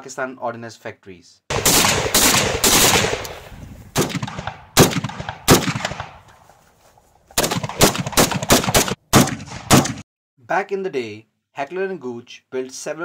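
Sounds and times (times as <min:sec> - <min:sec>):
rifle shots: 0:01.5 - 0:06.3, 0:07.4 - 0:10.0.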